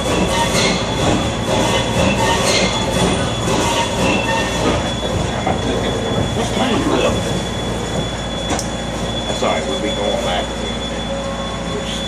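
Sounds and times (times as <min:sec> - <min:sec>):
train wheels clattering on rails: 0:00.0 - 0:09.0
wheel flanges squealing: 0:00.0 - 0:12.0.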